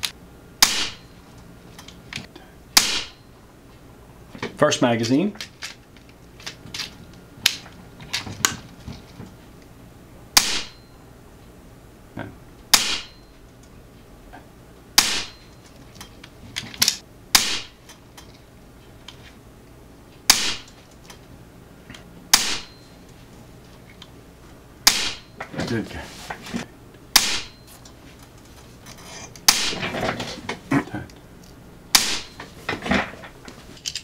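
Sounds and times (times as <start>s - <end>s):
air rifle shots: 0.6s - 1.1s, 2.8s - 3.3s, 10.4s - 10.8s, 12.7s - 13.2s, 15.0s - 15.4s, 17.3s - 17.8s, 20.3s - 20.8s, 22.3s - 22.8s, 24.8s - 25.3s, 27.1s - 27.6s, 29.4s - 29.8s, 31.9s - 32.4s.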